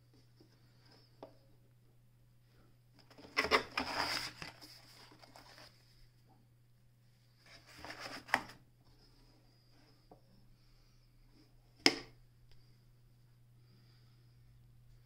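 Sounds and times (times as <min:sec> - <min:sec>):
paper booklet rustling against wood: 0:03.1 - 0:05.8, 0:07.4 - 0:08.6.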